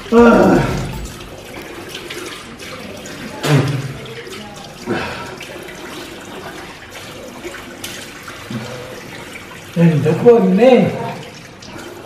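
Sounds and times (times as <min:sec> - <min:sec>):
man rinsing mouth: 0:00.0 - 0:12.0
tap water running into basin: 0:00.0 - 0:12.0.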